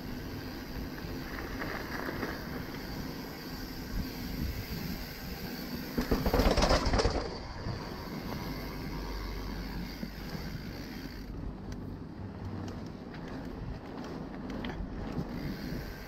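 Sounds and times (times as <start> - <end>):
bike rattling down stone steps: 0.0 - 11.4
tyres rolling on paving: 0.0 - 16.0.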